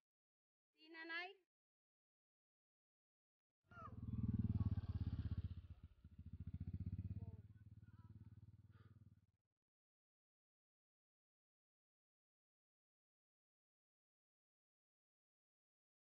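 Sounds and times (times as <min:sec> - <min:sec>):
motorcycle engine running: 0:03.7 - 0:09.3.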